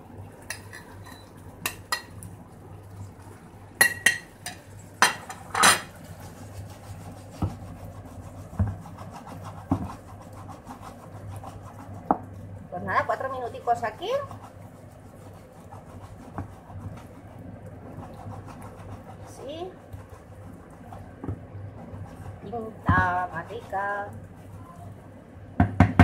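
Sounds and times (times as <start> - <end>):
wooden spoon stirring in a pan: 0.3 - 25.4.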